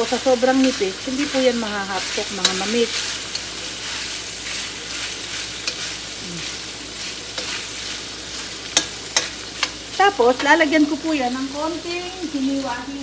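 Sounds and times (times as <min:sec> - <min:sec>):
meat sizzling in oil: 0:00.0 - 0:13.0
metal spoon clicking on pan: 0:02.4 - 0:03.5, 0:05.6 - 0:05.8, 0:08.7 - 0:09.8.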